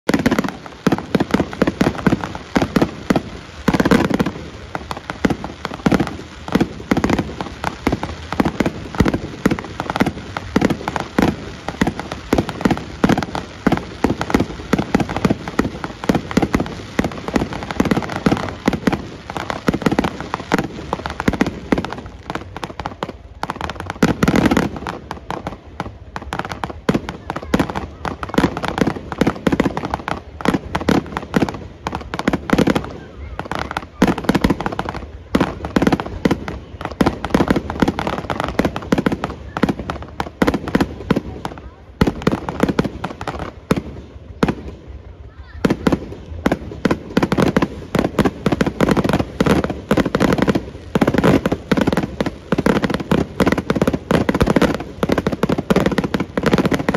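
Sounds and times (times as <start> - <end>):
fireworks bangs and crackling: 0.0 - 56.9.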